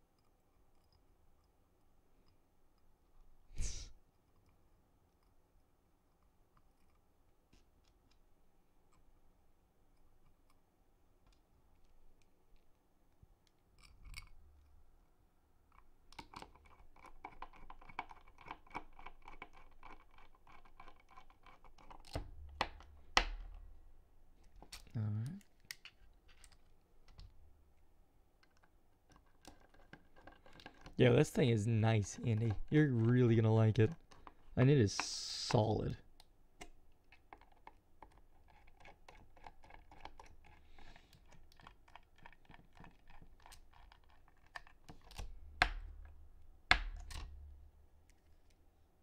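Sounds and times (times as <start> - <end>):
screwdriver clicks and scraping: 28.4 - 31.0.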